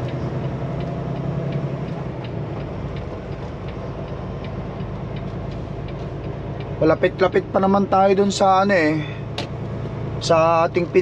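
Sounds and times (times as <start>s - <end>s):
light ticking: 0.0s - 8.4s
diesel truck engine droning: 0.0s - 11.0s.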